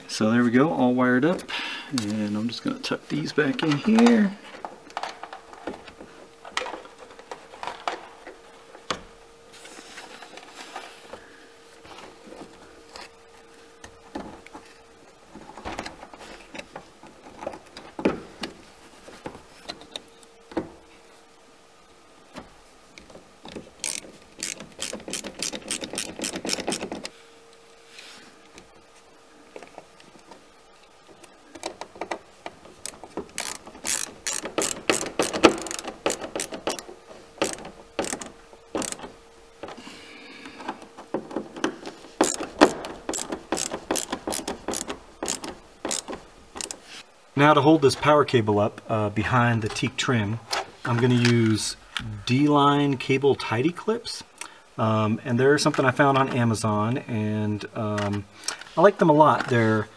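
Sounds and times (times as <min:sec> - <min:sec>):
handling knocks and rubbing: 0:01.2 - 0:11.2
ratcheting screwdriver clicking: 0:23.8 - 0:27.1, 0:32.8 - 0:39.1, 0:42.2 - 0:46.8.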